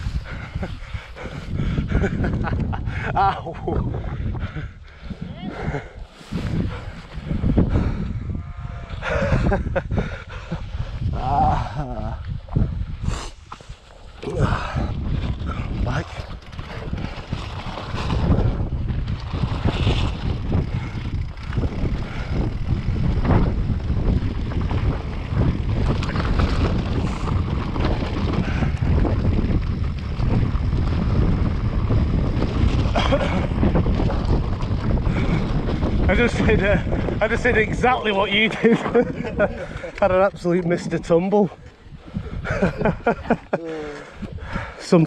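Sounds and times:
wind buffeting microphone: 0.0s - 45.0s
bike tyres crunching on gravel: 16.4s - 39.7s.

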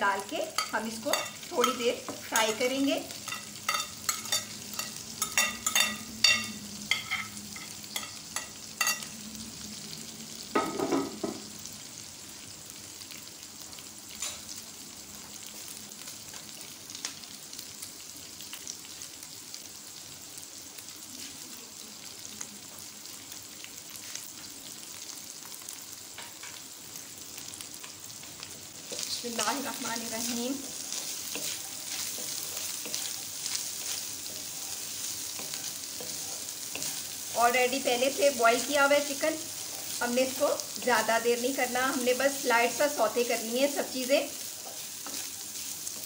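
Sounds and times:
chicken sizzling in oil: 0.0s - 46.0s.

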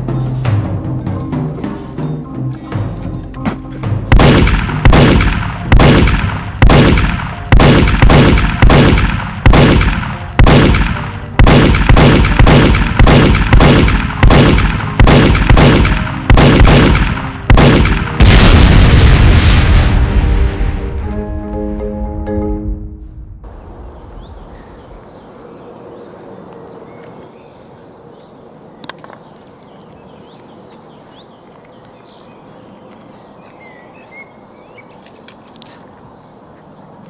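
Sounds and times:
gunshots: 4.1s - 20.6s
explosion blast: 4.1s - 21.1s.

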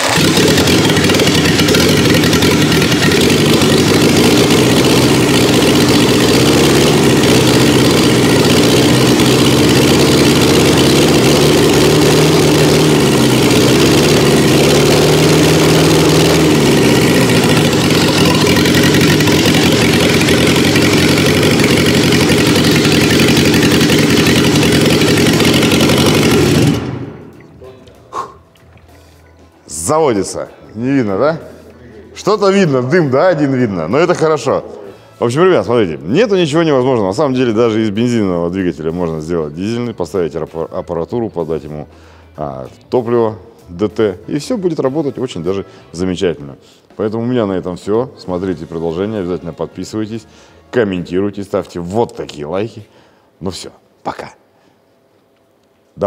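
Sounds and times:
diesel engine running: 0.0s - 28.2s.

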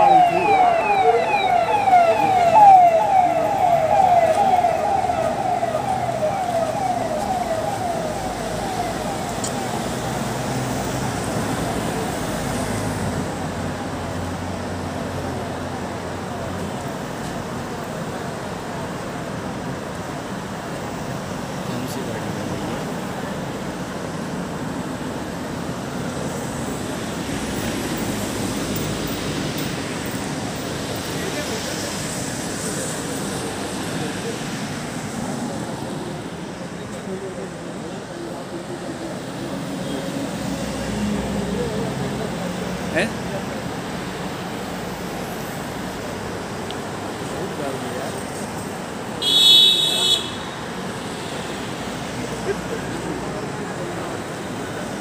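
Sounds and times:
vehicle siren sweeping: 0.0s - 12.2s
cars passing at speed: 0.0s - 55.0s.

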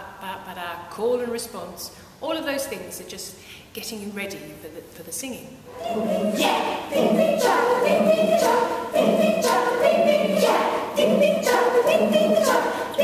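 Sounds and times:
choir singing a cappella: 5.7s - 13.0s.

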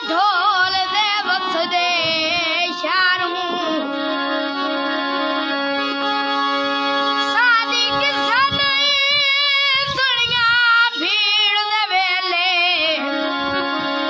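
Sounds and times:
harmonium held notes: 0.0s - 14.0s
boy singing loudly: 7.3s - 13.0s.

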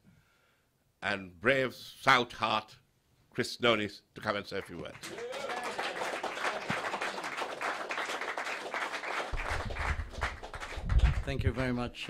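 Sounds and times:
audience applauding: 4.9s - 11.8s.

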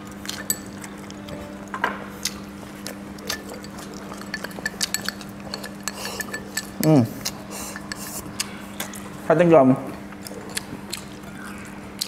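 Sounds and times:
steady low hum: 0.0s - 12.0s
chopsticks clicking on ceramic bowls: 3.2s - 8.2s.

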